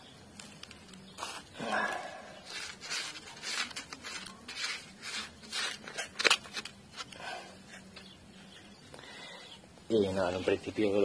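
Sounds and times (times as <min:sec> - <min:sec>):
hand scraping coarse sand: 0:01.1 - 0:06.3.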